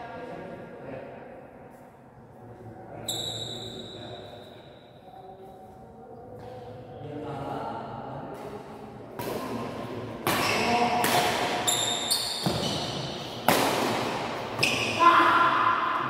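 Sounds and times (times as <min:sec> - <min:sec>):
rackets striking shuttlecock: 0:09.2 - 0:15.0.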